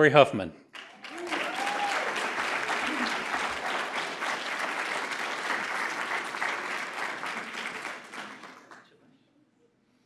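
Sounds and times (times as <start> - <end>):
audience applauding: 0.7 - 9.0.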